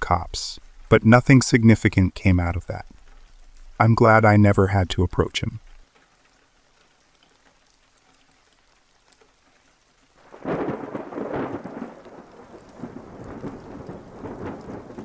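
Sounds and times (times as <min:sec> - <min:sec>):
steady rain: 0:00.0 - 0:15.0
thunder rumbling: 0:10.2 - 0:15.0.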